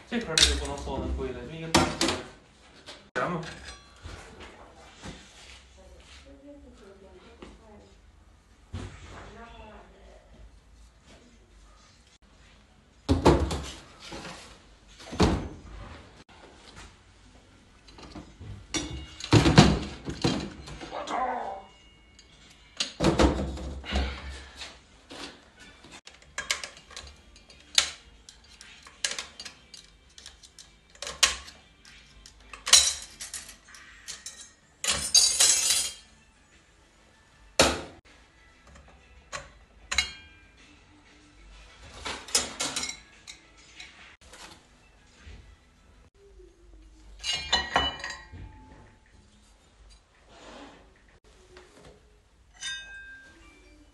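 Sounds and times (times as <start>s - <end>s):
metal parts clanking on workbench: 26.0s - 31.6s, 32.2s - 36.1s, 42.0s - 44.1s
metallic rattle of plates: 32.2s - 36.1s.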